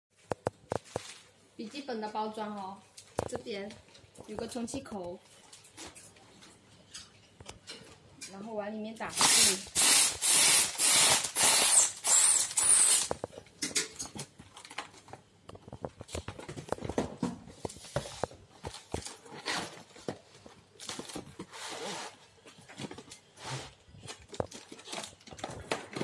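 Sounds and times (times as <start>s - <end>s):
compressed air hissing: 9.1s - 13.1s.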